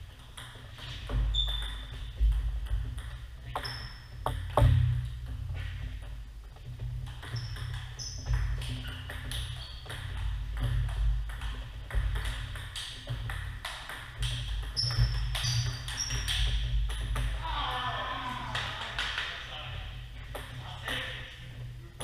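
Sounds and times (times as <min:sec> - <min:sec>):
steady low hum: 0:00.0 - 0:18.5, 0:19.3 - 0:22.0
table tennis ball pinging: 0:00.1 - 0:05.4, 0:07.0 - 0:17.4.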